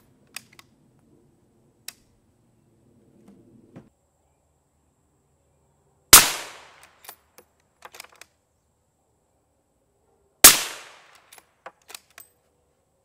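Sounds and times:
suppressed rifle shots: 6.2s - 6.8s, 10.4s - 11.2s.

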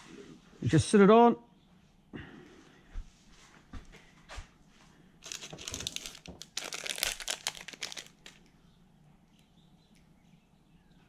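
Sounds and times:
plastic packaging crinkling: 5.2s - 8.5s.

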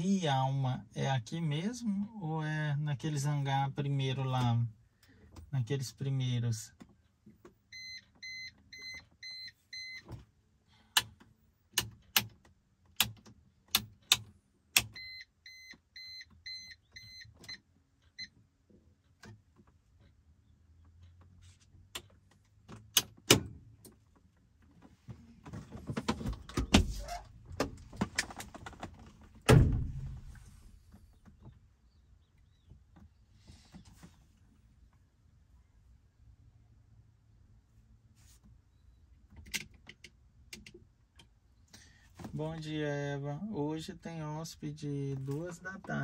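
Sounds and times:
loud thump: 29.5s - 30.8s.

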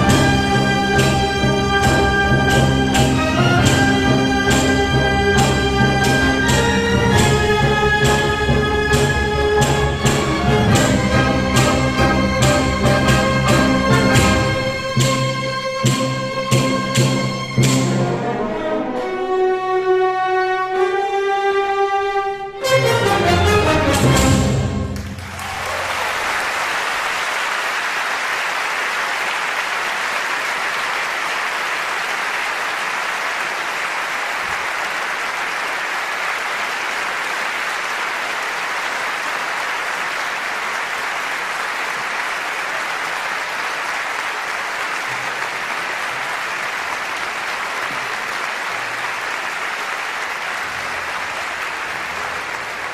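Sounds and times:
audience applauding: 23.6s - 52.9s.

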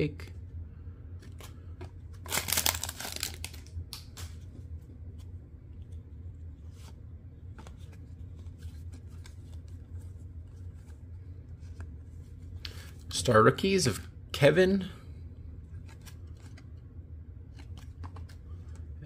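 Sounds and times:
low steady hum: 0.0s - 19.0s
cards clicking and shuffling: 1.1s - 13.1s, 15.7s - 16.8s, 17.4s - 18.9s
cards rustling and tearing: 1.2s - 6.0s, 6.6s - 13.0s, 15.7s - 16.8s, 17.5s - 18.8s.

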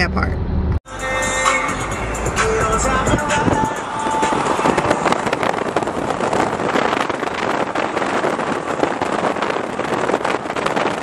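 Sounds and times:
car road noise: 0.0s - 11.0s
wind buffeting microphone: 2.2s - 11.0s.

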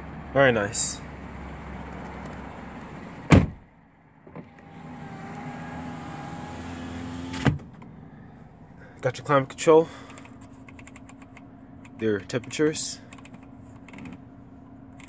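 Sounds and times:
engine idling hum: 0.0s - 15.0s
power window motor whining: 4.3s - 7.9s.

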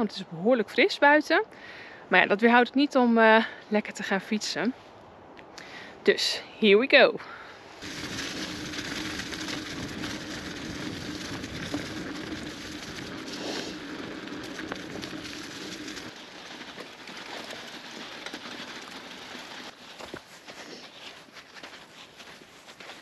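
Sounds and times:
low hum: 7.7s - 20.2s
bike tyres crackling on gravel: 7.7s - 23.0s.

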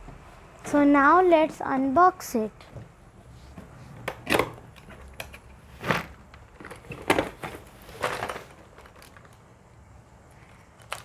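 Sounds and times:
cardboard and plastic rustling: 3.4s - 9.6s.

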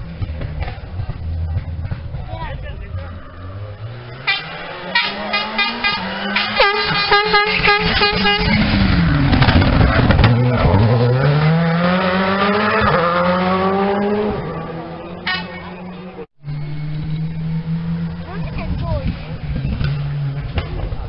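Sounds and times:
rally car engine at full throttle: 0.0s - 21.0s
rapid pulsing horn-like tone: 4.2s - 8.6s.

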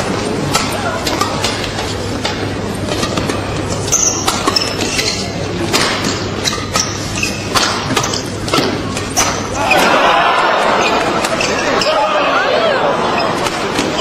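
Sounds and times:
crowd murmur: 0.0s - 14.0s
racket hitting shuttlecock: 0.4s - 9.9s
shoe squeaks on court: 3.8s - 5.4s, 6.4s - 8.4s, 10.8s - 11.9s.

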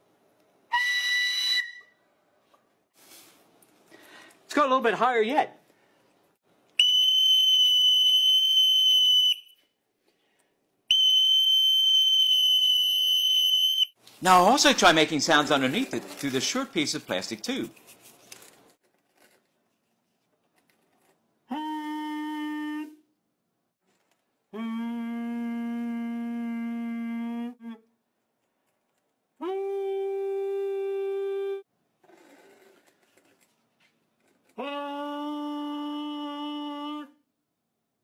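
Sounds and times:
man humming long notes: 21.5s - 23.0s, 24.5s - 27.9s, 29.4s - 31.6s, 34.6s - 37.2s.

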